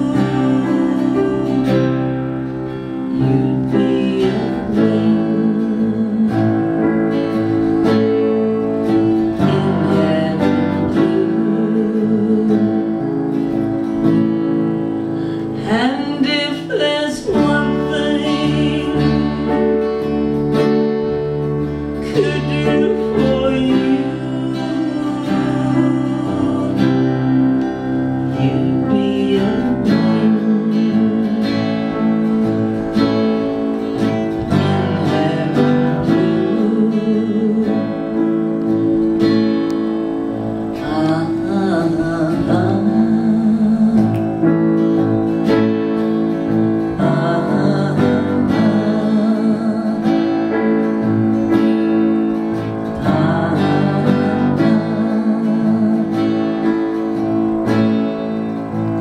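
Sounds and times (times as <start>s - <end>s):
woman singing: 0.0s - 14.1s, 15.5s - 20.4s, 21.9s - 32.1s, 34.3s - 39.0s, 40.7s - 44.6s, 46.8s - 50.6s, 52.9s - 57.5s
acoustic guitar strumming: 0.0s - 59.0s.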